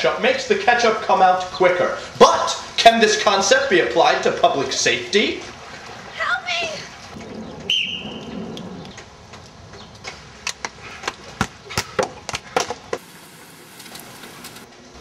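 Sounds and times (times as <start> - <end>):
whistle blast: 7.7 - 8.3.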